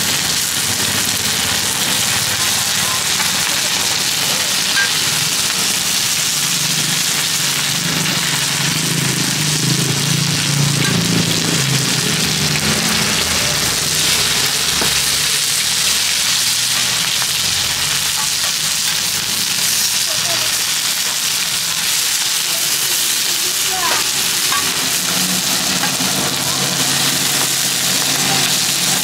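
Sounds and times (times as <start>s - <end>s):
batter sizzling in hot oil: 0.0s - 29.0s
metal spatula scraping a pan: 4.6s - 5.4s.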